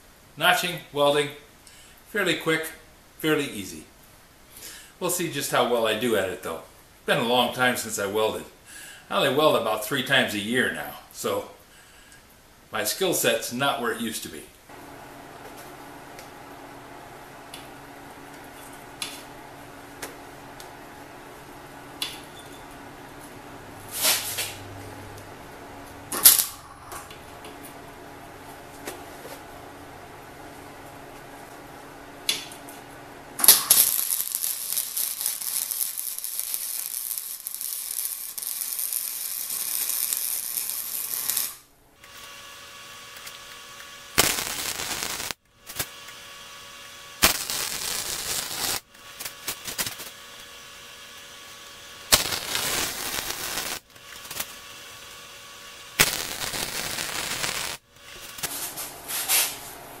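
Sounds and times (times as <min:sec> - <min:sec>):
welder arc crackling: 0:14.7 - 1:00.0.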